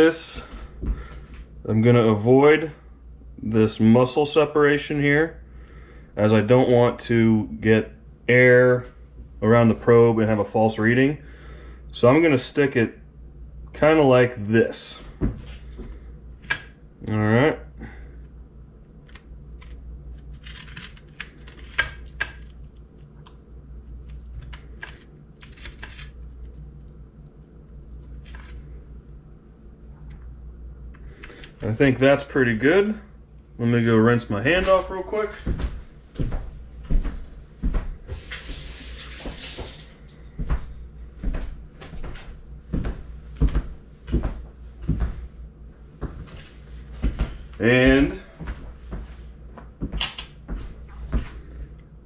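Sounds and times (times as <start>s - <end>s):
steady low hum: 0.0s - 52.0s
kitchen tap running: 38.2s - 40.0s.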